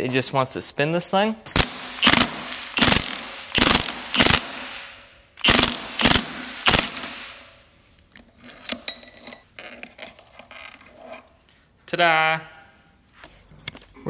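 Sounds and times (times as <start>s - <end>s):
impact wrench hammering: 1.5s - 7.5s.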